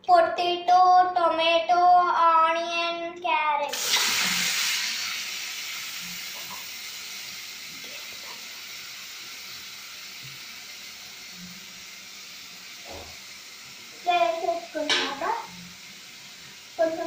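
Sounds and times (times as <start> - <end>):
vegetables sizzling in hot oil: 3.7 - 17.0.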